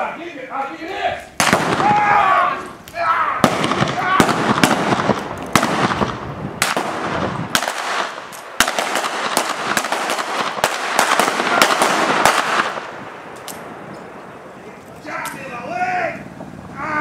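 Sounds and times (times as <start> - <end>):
gunshots: 1.4 - 2.4, 3.4 - 13.8.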